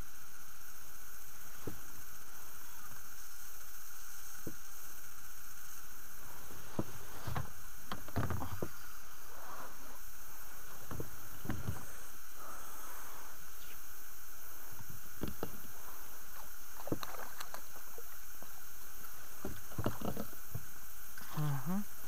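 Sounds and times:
steady hiss: 0.0s - 22.0s
water splashing: 16.3s - 20.5s.

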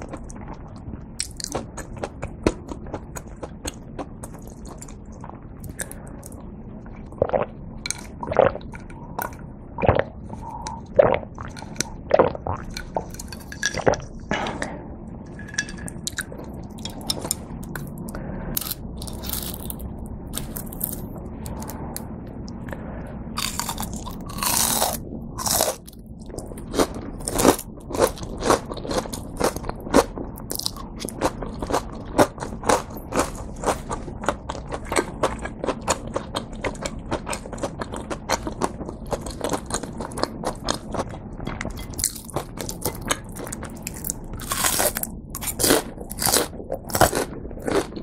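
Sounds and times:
crunchy bites: 23.4s - 34.0s, 41.7s - 48.0s
chewing: 23.4s - 48.0s.

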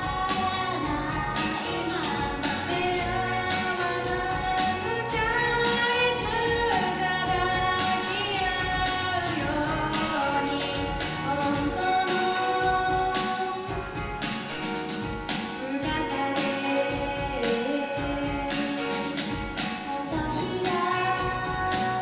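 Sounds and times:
female group singing live: 0.0s - 13.8s, 20.0s - 22.0s
backing music: 0.0s - 22.0s.

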